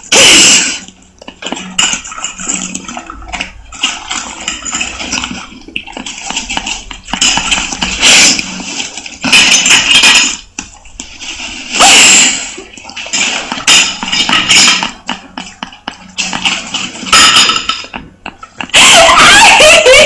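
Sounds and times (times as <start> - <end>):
water rushing and splashing: 0.0 - 17.5.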